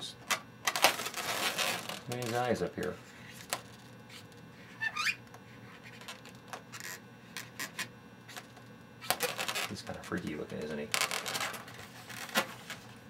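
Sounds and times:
latex balloon squeak: 0:00.8 - 0:02.0, 0:04.1 - 0:08.4, 0:09.0 - 0:09.8
marker scratching on balloon: 0:04.1 - 0:09.7.

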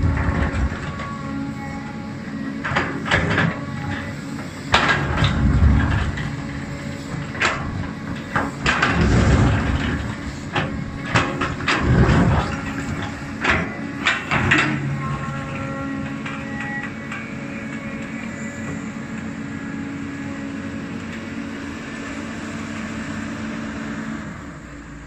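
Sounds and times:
excavator diesel engine droning: 0:00.0 - 0:25.0
bucket scraping and clanking stones: 0:07.4 - 0:15.0.

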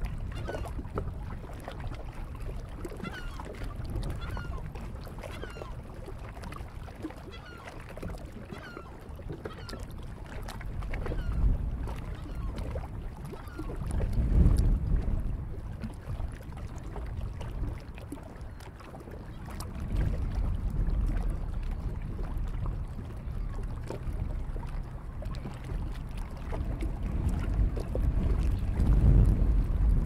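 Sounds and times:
wind rumbling on microphone: 0:00.0 - 0:30.0.

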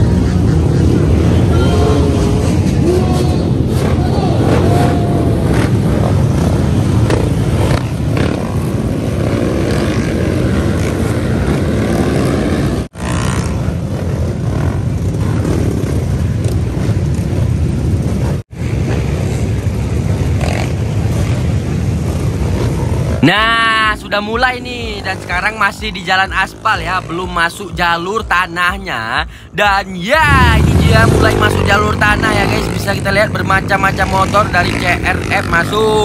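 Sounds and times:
voices: 0:00.0 - 0:05.8, 0:23.2 - 0:36.0
dirt bike engines revving: 0:00.0 - 0:36.0.

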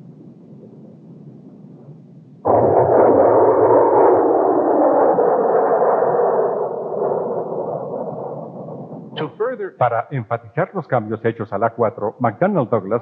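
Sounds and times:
faint low rumble: 0:00.0 - 0:13.0
jet roar passing close: 0:02.5 - 0:09.2.

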